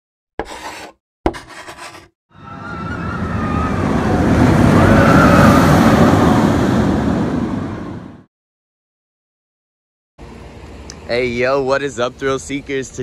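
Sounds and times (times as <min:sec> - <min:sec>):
rushing noise: 0:02.4 - 0:08.2.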